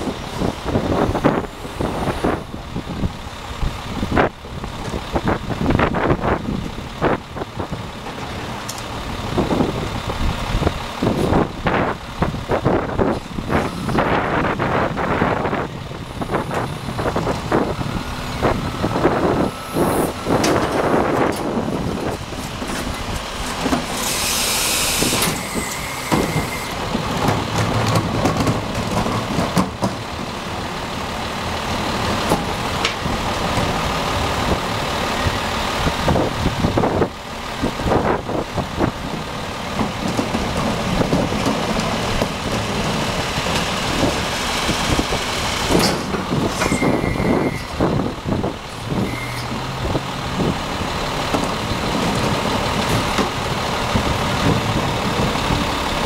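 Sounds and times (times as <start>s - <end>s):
garbage truck running: 0.0s - 56.0s
carts and lifter knocking: 26.2s - 30.2s, 39.6s - 44.2s.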